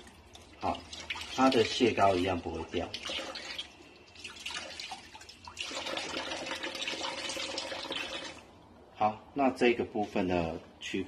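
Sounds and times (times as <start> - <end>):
water dripping: 0.0 - 8.7.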